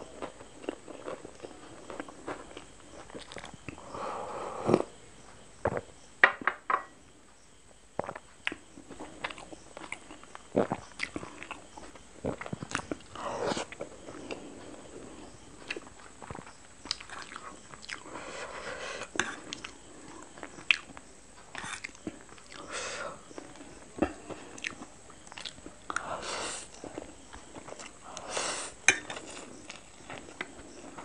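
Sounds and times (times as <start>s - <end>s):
wet chewing: 0.2s - 3.8s, 8.0s - 18.1s, 19.0s - 22.7s, 23.3s - 26.1s.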